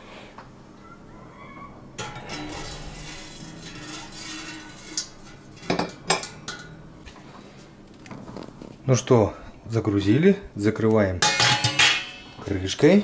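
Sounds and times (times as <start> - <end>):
metal rack scraping inside pot: 2.0 - 6.9.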